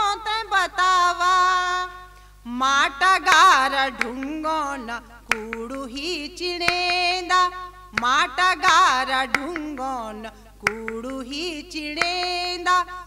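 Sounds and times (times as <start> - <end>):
woman singing folk song: 0.0 - 13.0
sharp clicks: 5.3 - 6.0, 9.3 - 9.9, 10.7 - 11.4.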